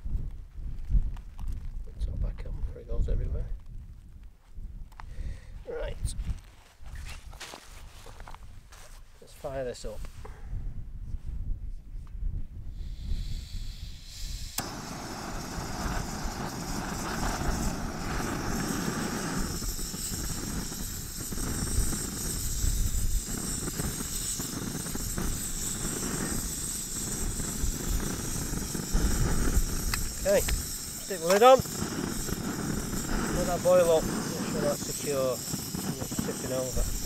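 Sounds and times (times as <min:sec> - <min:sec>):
gas stove burner hissing: 0:12.7 - 0:37.0.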